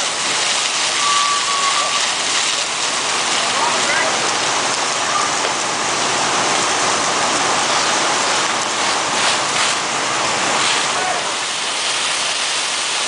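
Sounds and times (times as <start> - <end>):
fire hose water spraying: 0.0 - 13.0.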